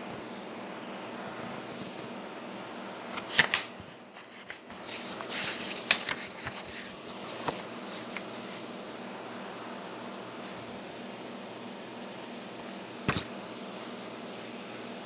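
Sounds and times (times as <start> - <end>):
steady hiss: 0.0 - 15.0
book pages flicking and rustling: 3.1 - 8.6, 13.0 - 13.3.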